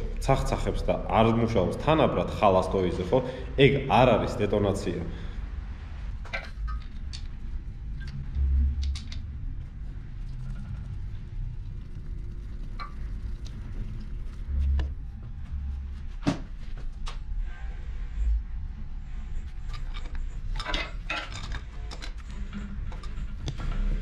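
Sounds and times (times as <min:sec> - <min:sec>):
metal parts and tools clicking: 0:19.6 - 0:24.0.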